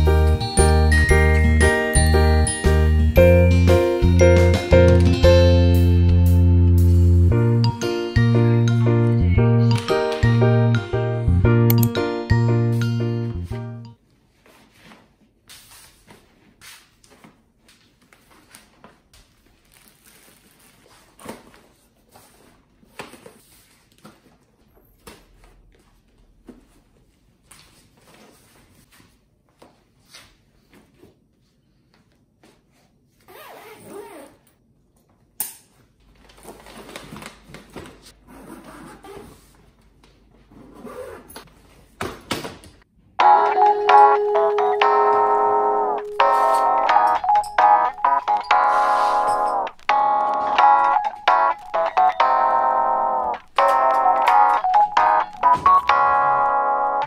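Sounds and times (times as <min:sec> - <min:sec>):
fabric rustling: 0:14.0 - 0:24.7.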